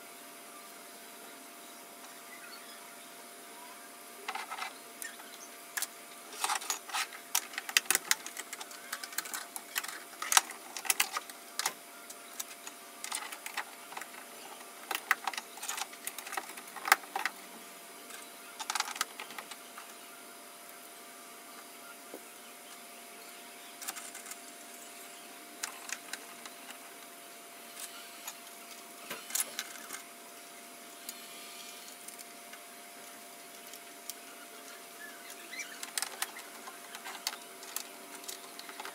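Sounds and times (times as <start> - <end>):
faint steady hum: 0.0 - 38.9
plastic parts clicking and knocking: 5.8 - 17.4, 18.1 - 19.6, 23.8 - 24.4, 25.6 - 26.8, 35.3 - 38.9.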